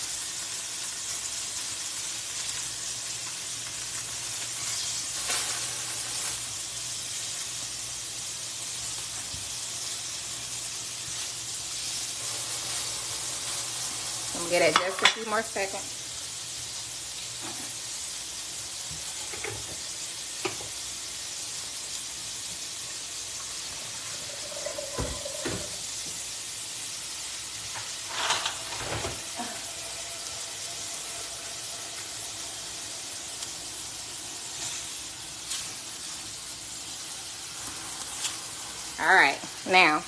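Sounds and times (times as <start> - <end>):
chicken sizzling in a skillet: 0.0 - 40.0
spatula working food in pan: 8.6 - 18.0, 21.8 - 39.9.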